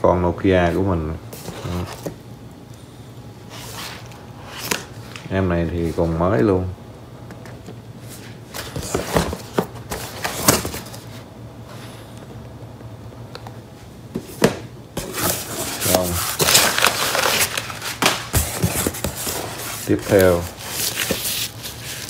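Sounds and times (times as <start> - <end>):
packaging rustling: 15.0 - 22.0.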